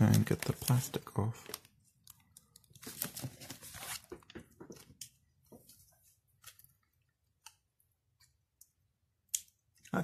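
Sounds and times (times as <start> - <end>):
shrink wrap crinkling and tearing: 0.0 - 4.1.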